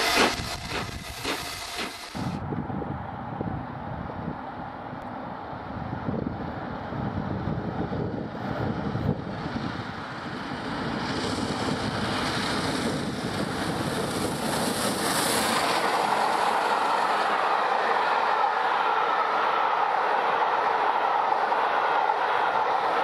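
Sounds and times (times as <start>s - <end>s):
wind rumbling on microphone: 0.0s - 17.4s.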